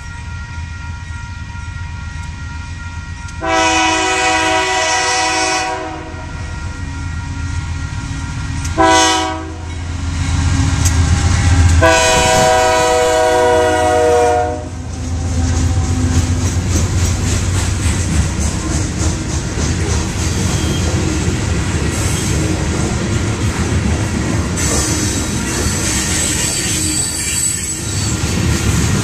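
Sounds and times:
rolling train wheels: 0.0s - 29.0s
locomotive air horn blasts: 3.4s - 6.4s, 8.8s - 9.7s, 11.8s - 14.8s.

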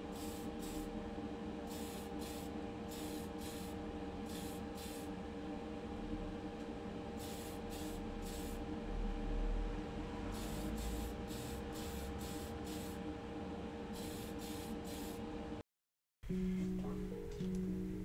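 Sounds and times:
steady hum: 0.0s - 15.6s
spray can hissing bursts: 0.1s - 0.9s, 1.7s - 5.1s, 7.2s - 8.6s, 10.4s - 13.0s, 14.0s - 15.2s.

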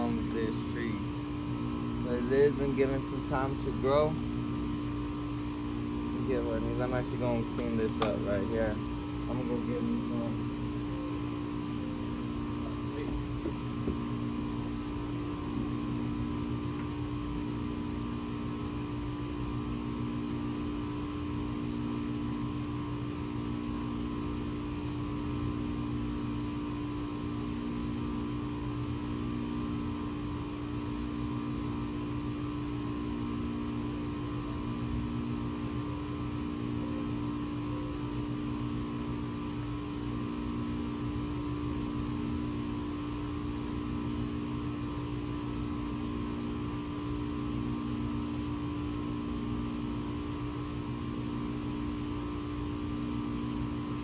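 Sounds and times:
machine hum with throb: 0.0s - 54.0s
small knock: 13.0s - 14.1s.

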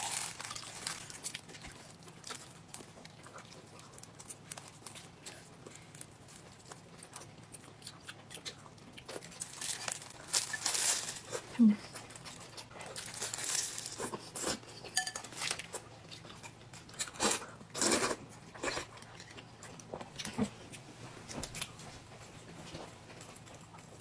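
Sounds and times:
cutlery clinking against dishes: 14.9s - 15.4s.

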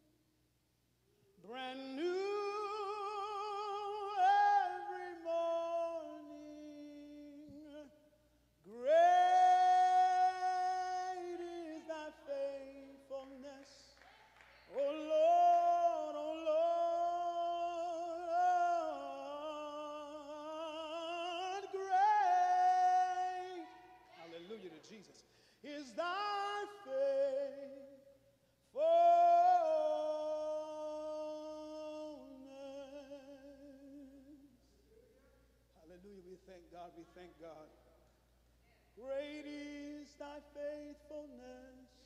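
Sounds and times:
man singing unaccompanied: 1.4s - 14.0s, 14.7s - 34.6s, 39.0s - 42.0s
singer breathing: 25.2s - 25.7s.

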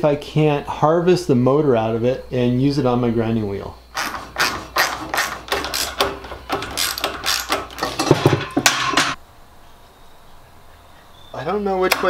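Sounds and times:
metallic tool clicks and clanks: 4.0s - 9.2s.

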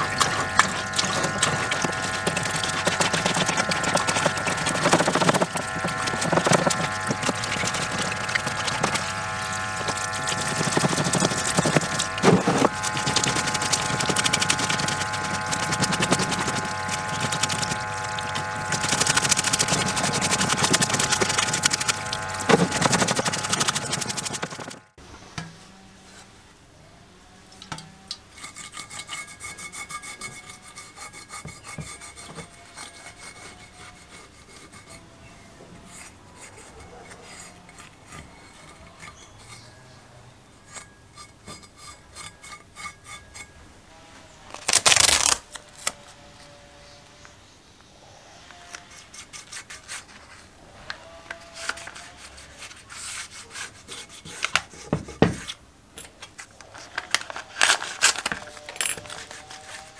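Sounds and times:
liquid sloshing: 0.0s - 24.9s
brush scrubbing metal: 0.0s - 25.0s, 28.0s - 43.6s, 48.5s - 55.6s, 56.2s - 59.9s
machine hum: 0.0s - 25.0s
masking tape clicks and rubbing: 0.0s - 25.0s, 44.5s - 46.0s
tape ripping off roll: 9.8s - 24.9s, 44.5s - 46.0s.

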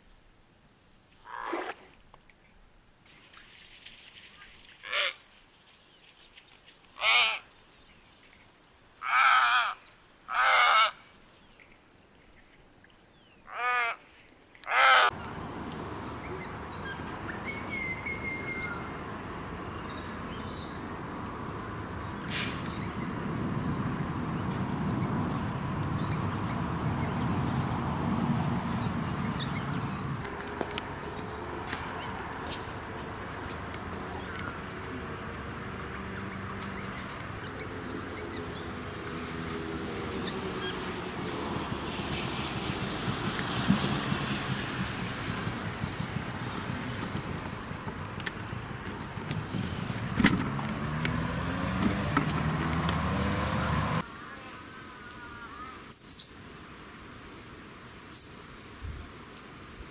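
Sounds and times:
outdoor background hiss: 0.0s - 59.9s
heron croaking harshly: 7.0s - 7.4s, 9.0s - 11.0s, 13.5s - 14.0s, 14.7s - 15.1s.

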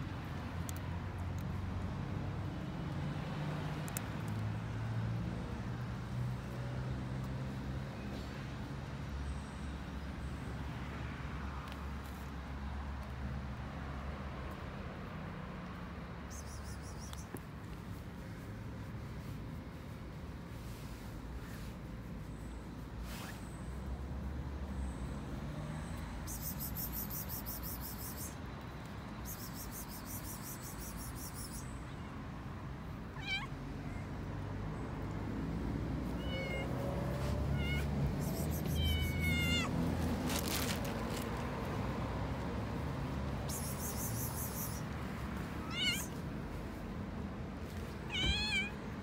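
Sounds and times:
cats meowing: 33.1s - 34.1s, 36.1s - 39.8s, 45.6s - 46.2s, 48.0s - 49.0s.

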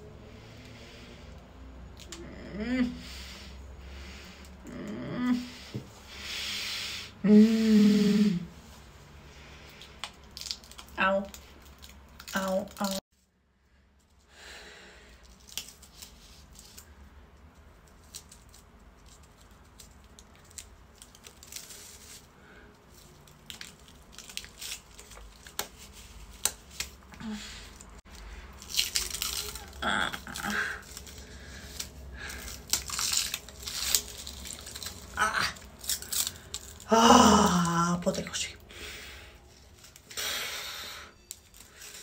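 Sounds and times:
prosthetic peeling off skin: 28.5s - 38.2s.

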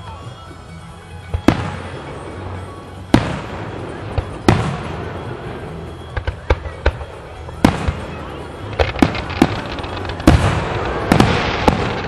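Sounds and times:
fireworks bangs echoing: 1.3s - 12.0s
small sharp firework pops: 6.1s - 8.1s, 8.7s - 12.0s.

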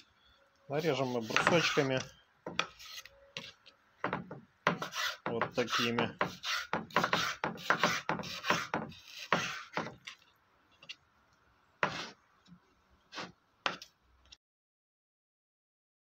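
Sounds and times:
knife cutting on a wooden board: 0.8s - 11.0s, 11.8s - 12.2s, 13.1s - 13.9s.

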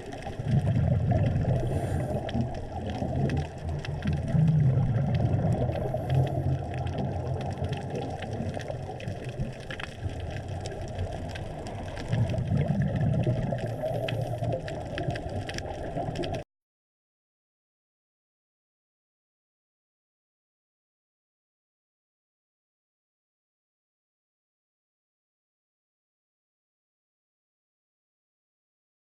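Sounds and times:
crackle of fine clicks: 0.0s - 16.4s
underwater regulator bubbles: 0.0s - 16.4s.

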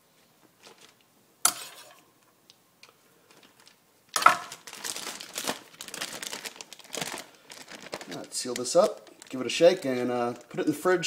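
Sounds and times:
plastic bag rustling: 0.6s - 1.0s, 3.3s - 11.0s.

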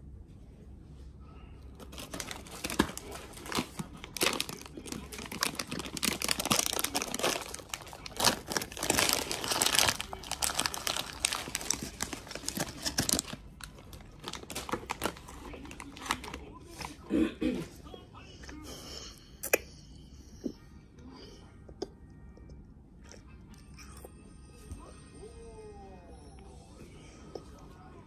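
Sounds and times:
plastic snack bag crinkling: 1.8s - 16.9s.

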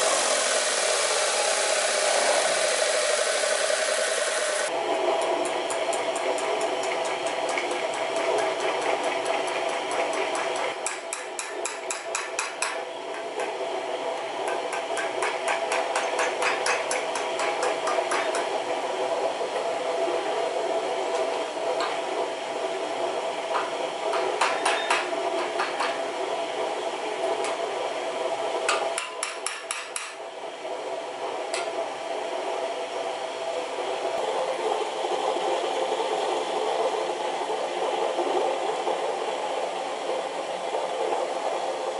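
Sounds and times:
hammer striking steel: 10.4s - 12.8s, 14.4s - 18.5s, 24.1s - 26.0s, 28.7s - 30.2s.

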